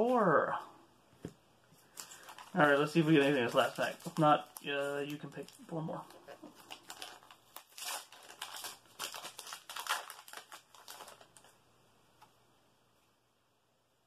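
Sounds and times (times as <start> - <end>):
foil wrapper crinkling: 1.8 - 11.6.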